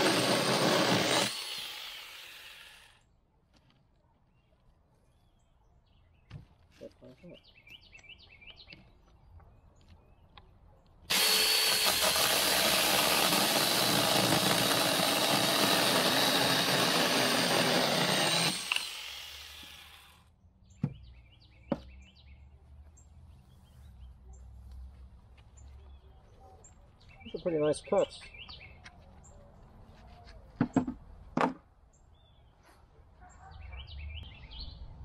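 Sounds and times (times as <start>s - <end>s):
battery chainsaw cutting log: 0.0s - 3.0s, 11.1s - 20.2s.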